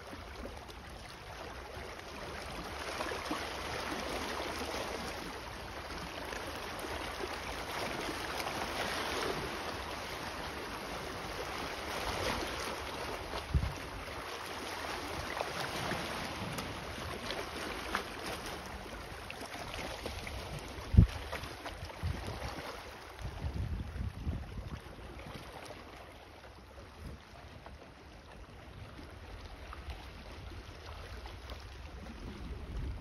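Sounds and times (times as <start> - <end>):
waves lapping against rocks: 0.0 - 33.0
wind rumbling on microphone: 12.4 - 14.2, 20.2 - 25.4, 28.6 - 33.0.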